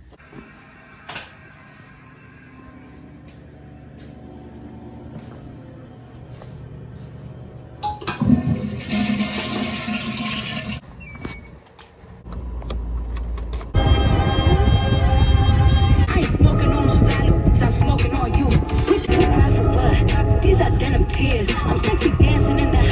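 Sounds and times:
toilet flushing: 0:08.1 - 0:10.8.

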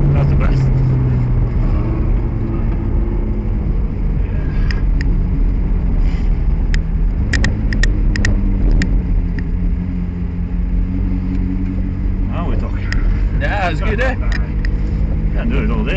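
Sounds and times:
car engine running from inside cabin: 0:00.0 - 0:15.9.

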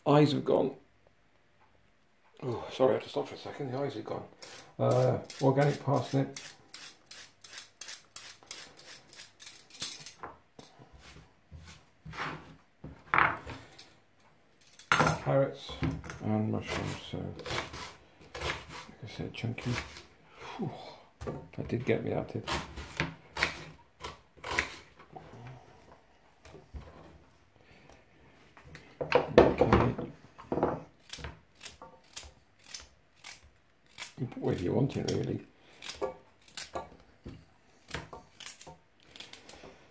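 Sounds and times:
vegetable peeler scraping: 0:04.4 - 0:10.2, 0:16.6 - 0:20.1, 0:31.0 - 0:36.7, 0:37.8 - 0:39.6
knife slicing carrot: 0:16.7 - 0:18.9.

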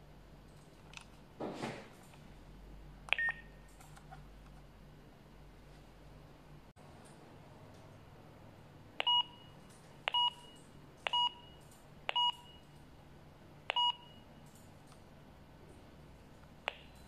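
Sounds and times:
walkie-talkie keypad beeps: 0:09.0 - 0:09.4, 0:12.1 - 0:12.6.

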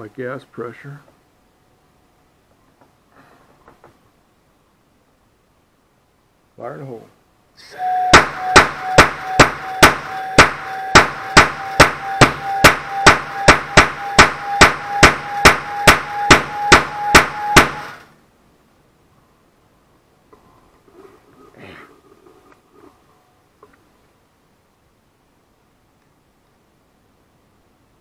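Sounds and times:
steady hiss with thin whistle: 0:03.2 - 0:28.0
noise cannon bangs: 0:08.1 - 0:18.0.

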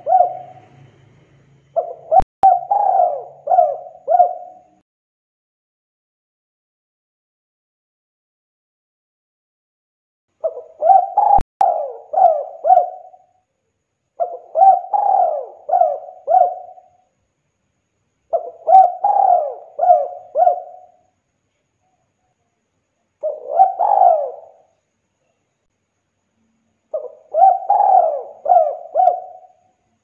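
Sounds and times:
dove cooing: 0:00.0 - 0:00.9, 0:01.8 - 0:04.8, 0:10.4 - 0:13.3, 0:14.2 - 0:17.0, 0:18.3 - 0:21.0, 0:23.2 - 0:24.7, 0:26.9 - 0:29.6.

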